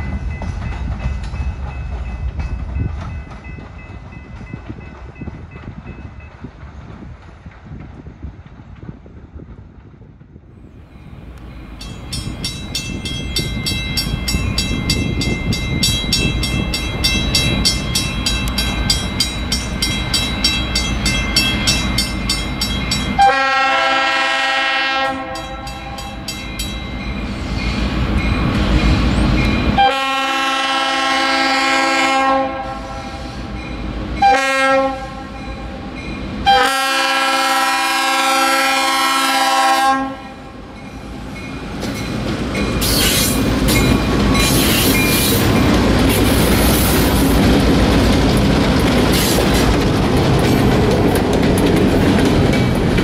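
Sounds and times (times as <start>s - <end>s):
diesel locomotive rumble: 0.0s - 53.0s
crossing signal bell ringing: 10.9s - 23.5s, 25.3s - 29.9s
locomotive air horn blasts: 23.2s - 26.2s, 29.8s - 33.6s, 34.2s - 35.4s, 36.4s - 40.5s.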